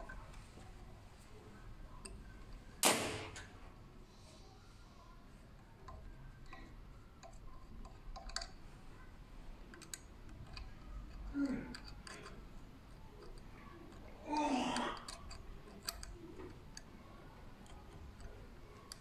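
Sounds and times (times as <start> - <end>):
small metal clicks and clinks: 5.8 - 9.1, 9.7 - 14.1, 14.8 - 19.0.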